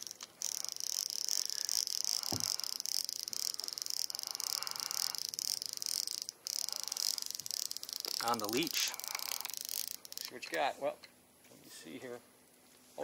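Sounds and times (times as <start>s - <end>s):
fishing reel clicking hum: 0.0s - 10.4s.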